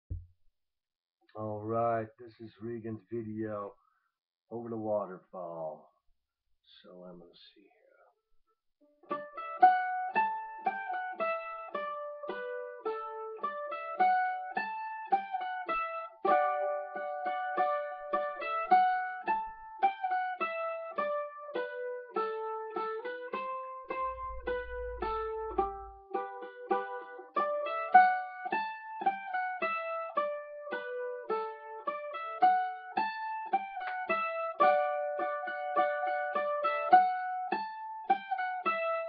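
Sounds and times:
mandolin melody: 8.8s - 39.0s.

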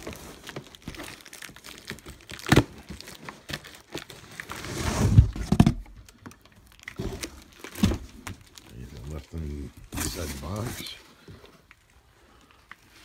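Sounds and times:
cardboard rustling and scraping: 3.1s - 5.9s, 9.9s - 11.6s.

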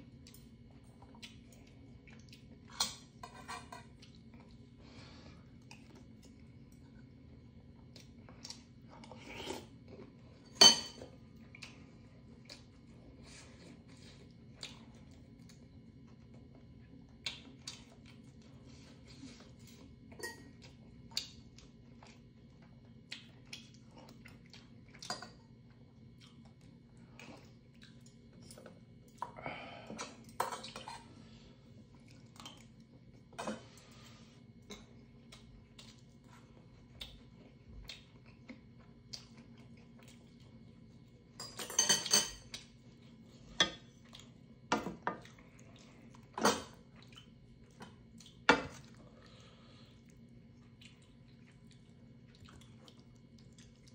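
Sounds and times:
chewing: 0.1s - 41.3s, 42.4s - 53.9s
metal utensils clinking on pot: 41.4s - 42.4s.

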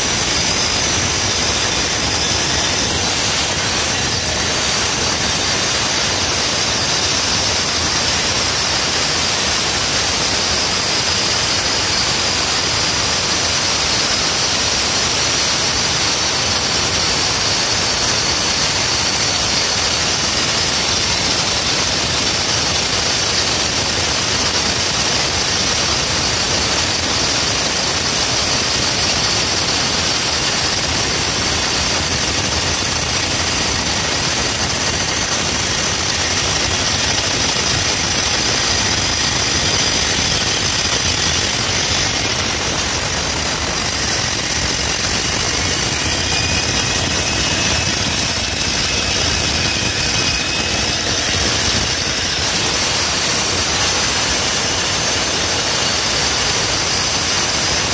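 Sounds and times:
concrete saw grinding: 0.0s - 9.0s, 22.0s - 57.9s.

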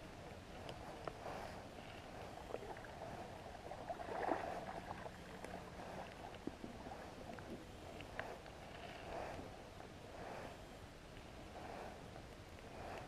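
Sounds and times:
lapping water: 2.2s - 8.4s.

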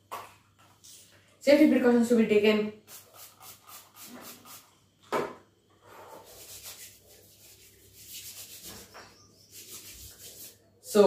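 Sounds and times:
hands rubbing small object: 6.2s - 10.6s.

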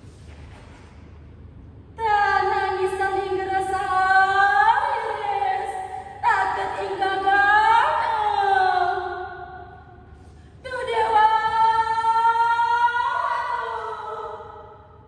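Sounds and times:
woman singing: 2.0s - 9.4s, 10.6s - 14.7s.

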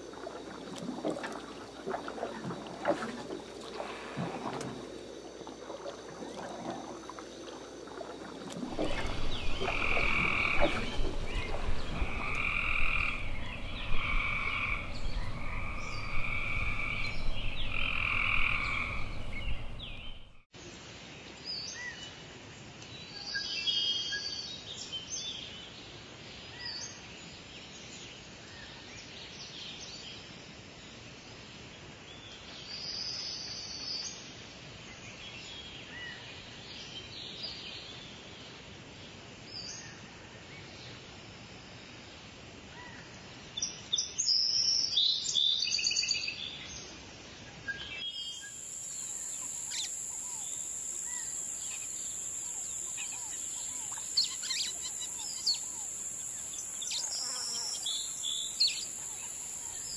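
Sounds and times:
rainforest ambience: 0.0s - 21.9s, 47.8s - 59.9s
frog rasping call: 5.6s - 20.4s, 48.4s - 59.9s
faint high chirps: 48.2s - 59.9s.

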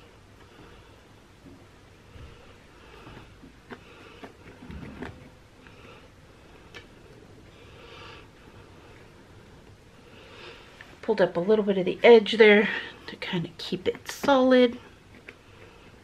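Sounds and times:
hands pressing dough: 2.1s - 7.0s, 13.6s - 16.0s
person breathing: 5.6s - 11.0s.

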